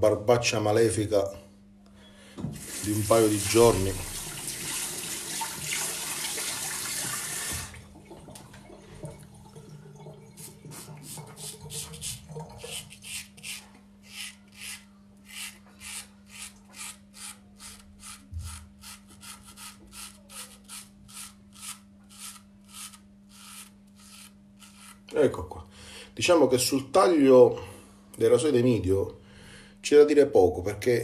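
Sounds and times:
tap water running into sink: 2.4s - 12.8s
razor scraping stubble: 12.0s - 25.1s.

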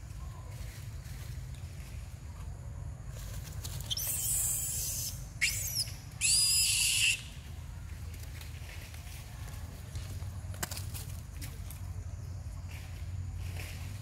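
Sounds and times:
young monkeys screaming: 3.9s - 7.4s.

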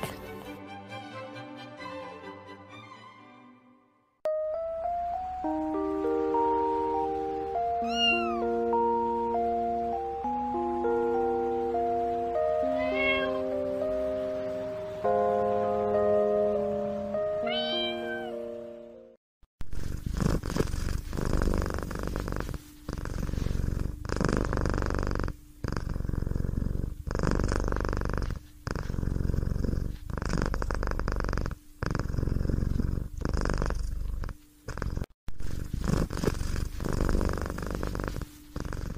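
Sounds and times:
cat purring: 19.7s - 38.9s.

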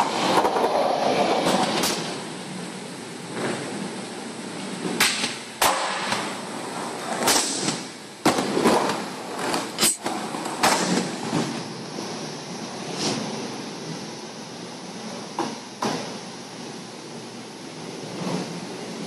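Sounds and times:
skateboards popping and landing: 0.0s - 2.3s, 4.6s - 13.6s, 15.1s - 16.8s
skateboard wheels rolling: 0.0s - 19.0s.

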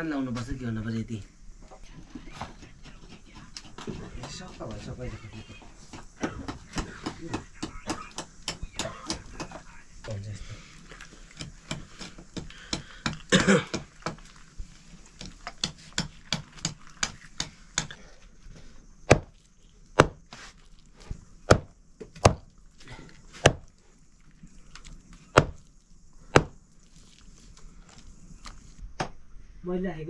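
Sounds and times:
knife chopping on wooden block: 15.6s - 18.0s, 19.1s - 19.3s, 20.0s - 20.2s, 21.5s - 22.5s, 23.4s - 23.7s, 25.3s - 25.6s, 26.3s - 26.6s.

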